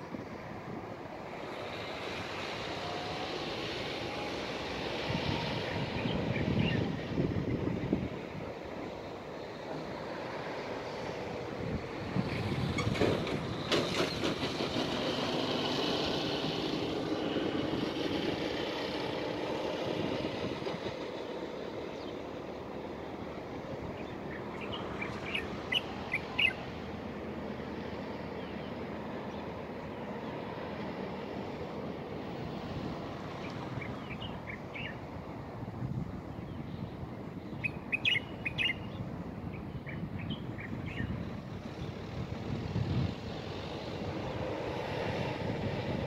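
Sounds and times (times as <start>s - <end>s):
steady outdoor hiss: 0.0s - 46.0s
vehicle passing: 1.2s - 35.3s
bird chirping: 24.0s - 26.6s, 36.4s - 39.0s.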